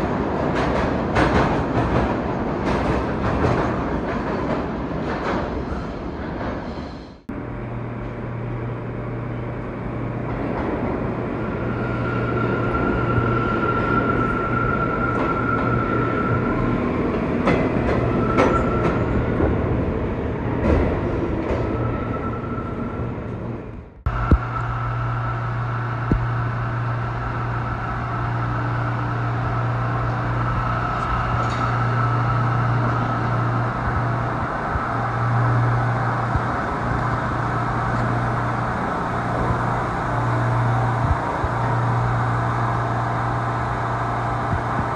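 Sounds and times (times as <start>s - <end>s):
subway train rumble: 0.0s - 44.9s
high whine: 23.9s - 44.9s.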